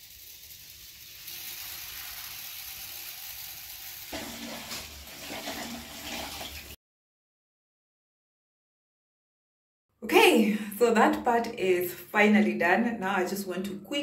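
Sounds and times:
water splashing into drain: 0:00.7 - 0:06.8.

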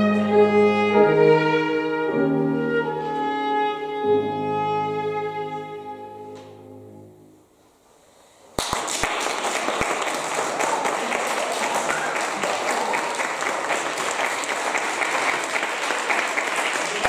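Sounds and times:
audience applause: 0:08.6 - 0:17.0.

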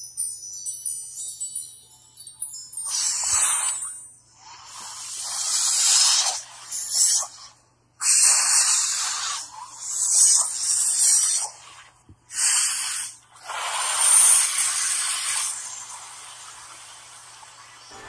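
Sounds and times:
loud hissing bursts: 0:12.3 - 0:17.1.

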